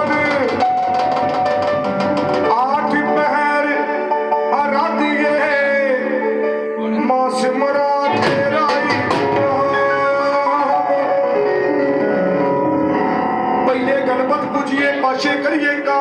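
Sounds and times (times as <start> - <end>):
drum hits: 0.0 - 3.3, 8.1 - 10.6
sustained instrumental accompaniment: 0.0 - 16.0
man singing into a microphone: 2.4 - 11.8, 13.6 - 16.0.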